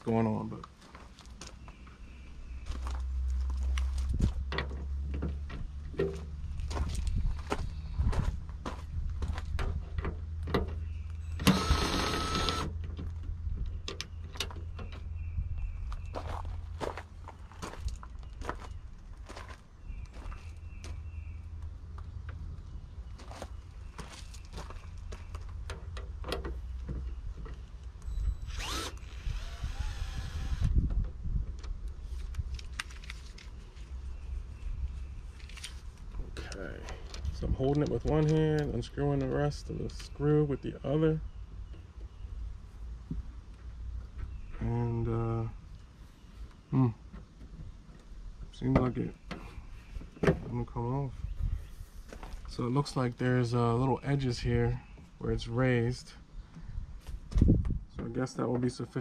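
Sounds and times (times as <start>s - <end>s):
electric screwdriver motor whine: 11.4s - 12.7s, 28.5s - 30.8s.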